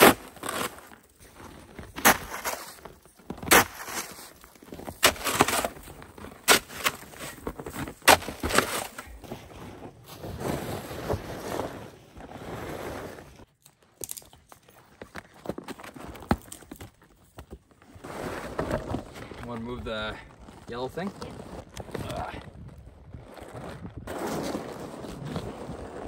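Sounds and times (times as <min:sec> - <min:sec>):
snow shovel scraping icy snow: 0:00.0 - 0:13.4, 0:18.0 - 0:21.5, 0:23.4 - 0:26.0
crunching and shuffling: 0:00.0 - 0:26.0.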